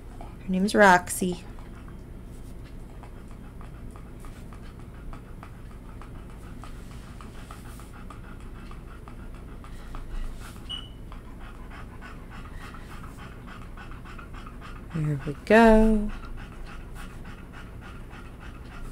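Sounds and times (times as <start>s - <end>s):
dog panting: 0.0s - 18.9s
high squeak: 10.7s - 11.0s.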